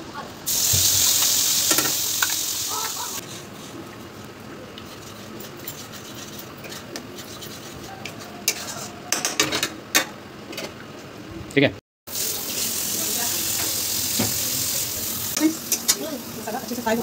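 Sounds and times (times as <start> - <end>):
spice paste sizzling in oil: 0.5 - 3.8, 12.1 - 17.0
metal spatula scraping pan: 4.9 - 9.0.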